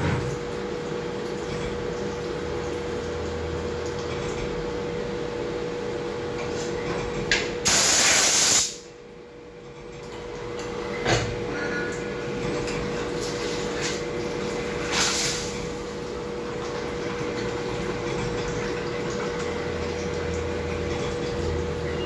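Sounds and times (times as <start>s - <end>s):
coolant spray hissing: 7.6s - 8.8s.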